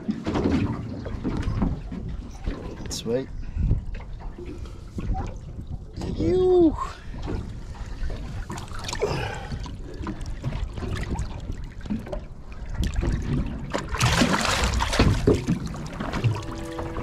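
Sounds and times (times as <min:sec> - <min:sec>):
water sloshing against boat: 0:00.0 - 0:17.0
fish splashing in water: 0:12.8 - 0:17.0.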